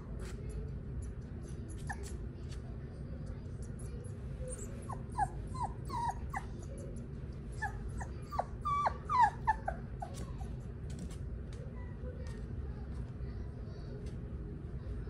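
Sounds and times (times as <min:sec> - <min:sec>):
puppy whimpering: 0:01.8 - 0:02.2, 0:04.4 - 0:06.8, 0:07.5 - 0:10.6.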